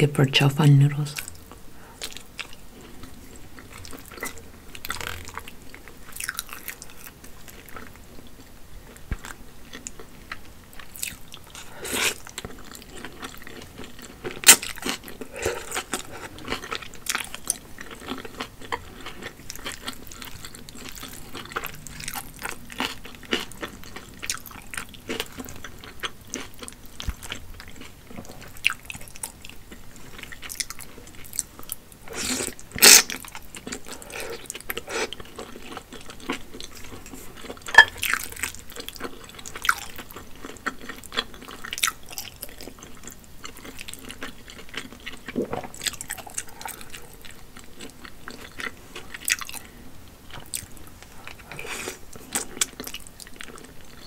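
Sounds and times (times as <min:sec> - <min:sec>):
person chewing food: 0:01.2 - 0:54.0.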